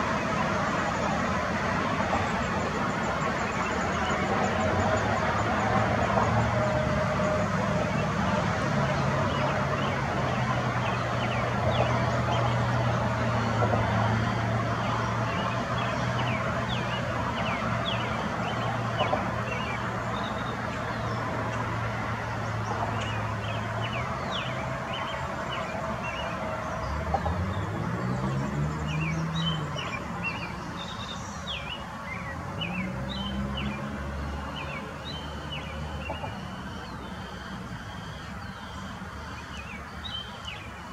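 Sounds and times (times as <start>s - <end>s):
vehicles passing: 0.0s - 40.9s
bird chirps: 27.6s - 33.9s.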